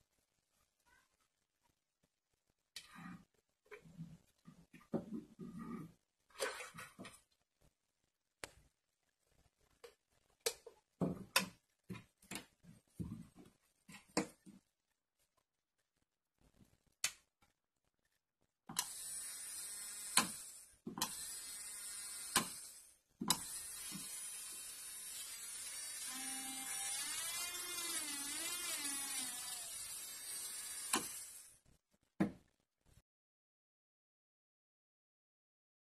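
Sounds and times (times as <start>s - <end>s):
electric nail drill whining: 18.8s - 31.6s.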